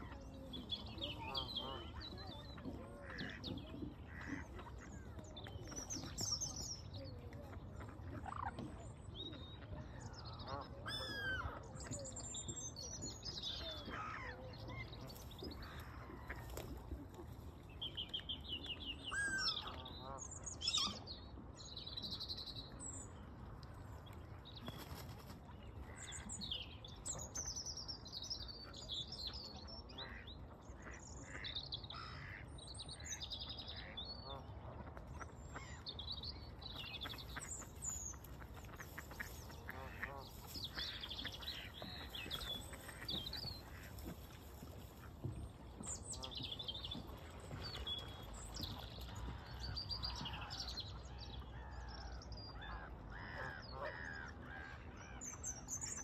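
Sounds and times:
ducks quacking: 0:00.0 - 0:05.2, 0:29.9 - 0:35.8, 0:37.0 - 0:50.6
birds chirping: 0:00.0 - 0:56.0.

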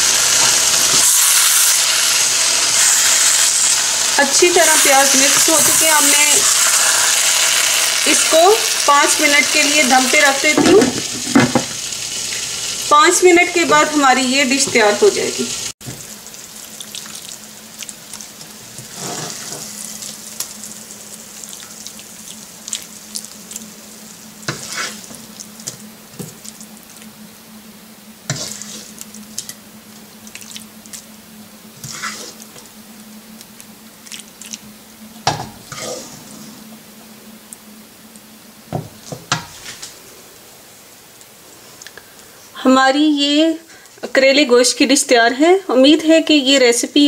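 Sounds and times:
faint sizzle: 0:00.0 - 0:47.0
steady low hum: 0:19.5 - 0:39.1
serving spoon scraping and knocking: 0:28.3 - 0:28.9.

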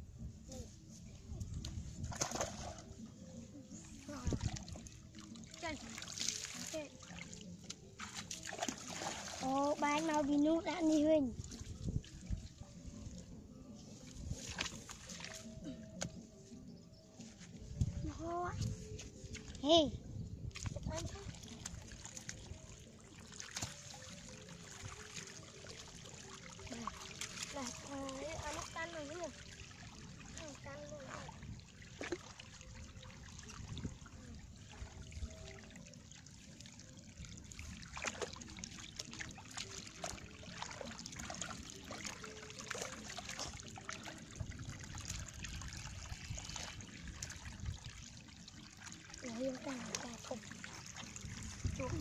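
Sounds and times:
hands sloshing in muddy water: 0:01.5 - 0:03.1, 0:03.8 - 0:13.2, 0:14.0 - 0:15.9, 0:20.5 - 0:52.0
small splashes: 0:02.0 - 0:03.0, 0:03.9 - 0:12.5, 0:14.3 - 0:15.9, 0:20.5 - 0:52.0
water trickling: 0:03.6 - 0:13.2, 0:19.4 - 0:52.0
hands splashing in muddy water: 0:08.0 - 0:10.2.

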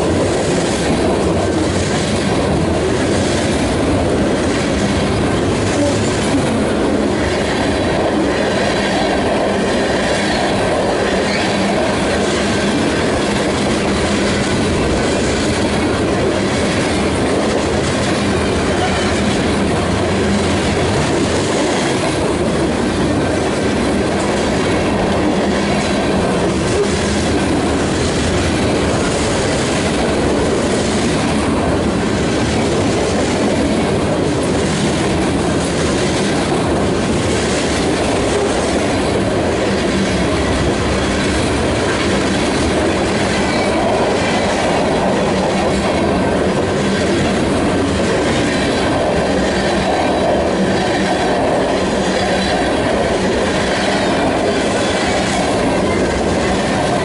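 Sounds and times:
train wheels on rails: 0:00.0 - 0:57.0.

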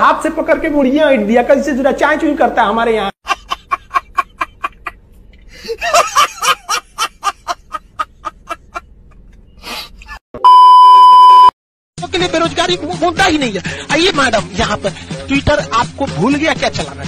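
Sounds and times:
man laughing hard: 0:03.2 - 0:09.3
loud electronic beep: 0:10.4 - 0:11.5.

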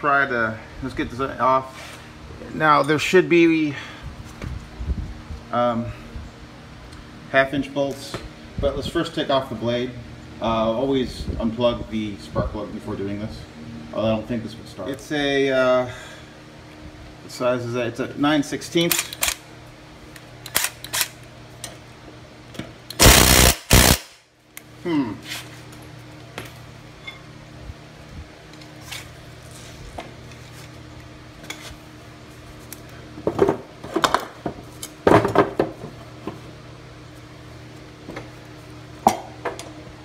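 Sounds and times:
impact wrench hammering: 0:23.0 - 0:24.2.

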